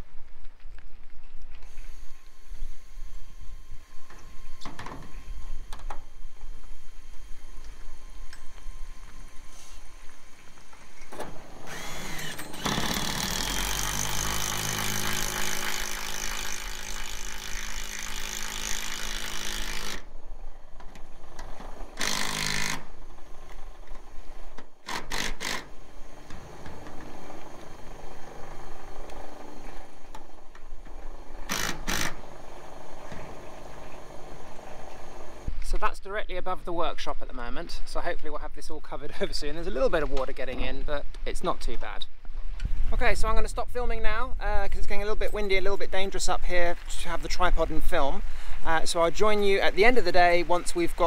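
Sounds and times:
cordless drill driving screws: 7.4 - 20.1, 20.8 - 35.5
wind noise: 42.2 - 50.2.

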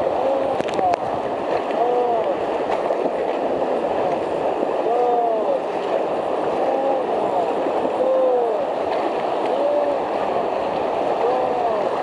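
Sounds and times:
river rapids rushing: 0.0 - 12.0.

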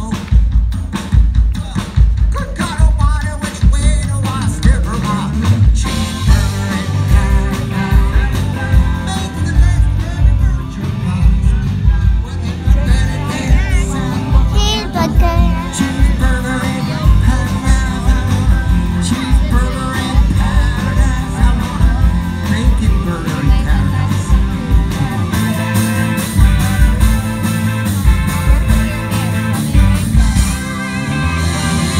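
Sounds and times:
live rock band playing: 0.0 - 31.9
person singing: 13.1 - 18.3.

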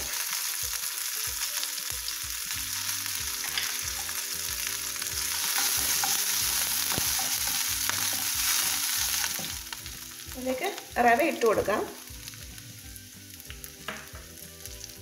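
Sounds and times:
spices sizzling in hot ghee: 0.0 - 15.0
spatula stirring and scraping: 3.4 - 9.8.

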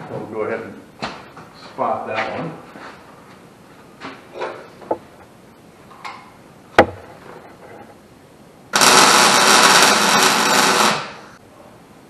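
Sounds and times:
welder arc noise: 8.7 - 11.4.

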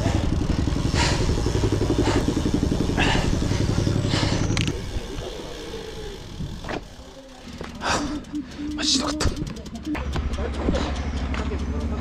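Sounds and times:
person panting hard: 0.0 - 4.7, 7.8 - 8.8
low engine rumble: 0.0 - 12.0.

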